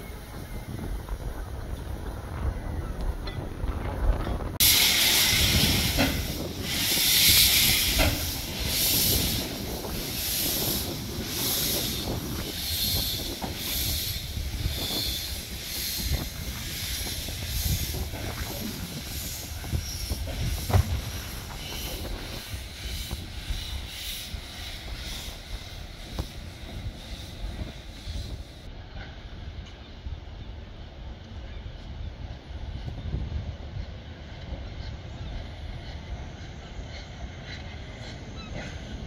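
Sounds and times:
steam locomotive puffing: 4.6 - 28.7.

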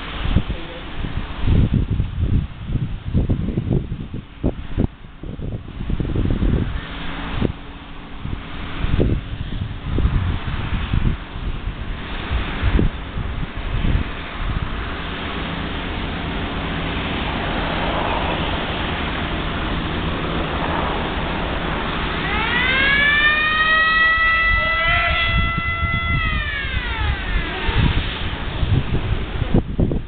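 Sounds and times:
wind on microphone: 0.0 - 30.0
warning siren winding: 22.2 - 28.0.

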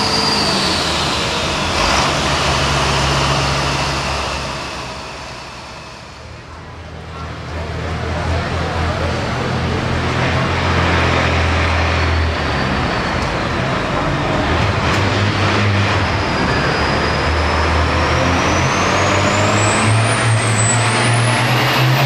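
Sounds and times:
high whine rising in pitch: 0.0 - 6.6
diesel tractor engine under load: 0.0 - 22.0.

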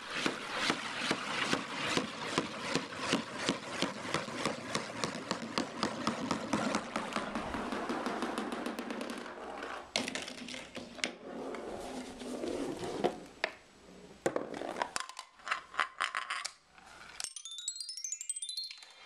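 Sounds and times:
marbles rolling and clattering: 5.1 - 11.1, 14.2 - 19.0
toy xylophone notes: 17.2 - 19.0.

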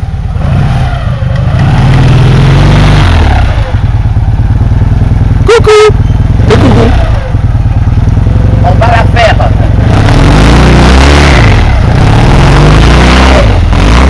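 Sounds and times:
car engine revving: 0.0 - 14.0
person shouting: 5.5 - 6.0.

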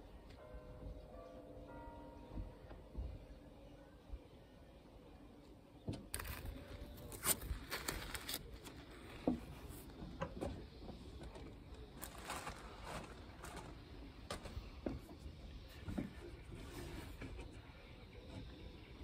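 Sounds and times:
tape and paper crinkling: 6.1 - 9.4, 11.3 - 14.5.

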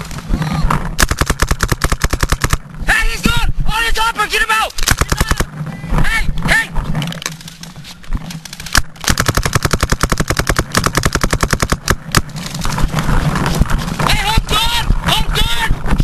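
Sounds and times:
paintball markers firing: 0.9 - 2.7, 4.7 - 5.6, 8.3 - 12.4.

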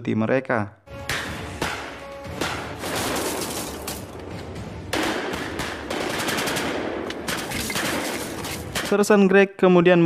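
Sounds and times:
automatic gunfire: 4.9 - 8.9.

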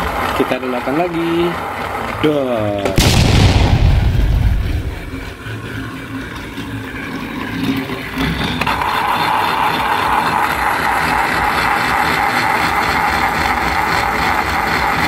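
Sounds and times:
toy train motor: 0.0 - 2.8, 5.4 - 15.0
explosion sound effect: 3.0 - 5.3.

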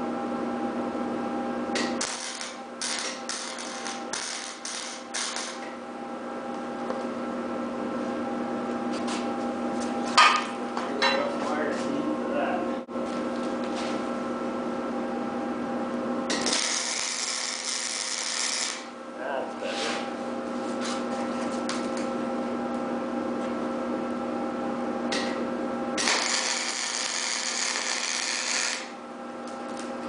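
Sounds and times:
steady hum: 0.0 - 30.0
welding arc crackling: 1.8 - 5.7, 16.3 - 19.0, 26.0 - 29.0.

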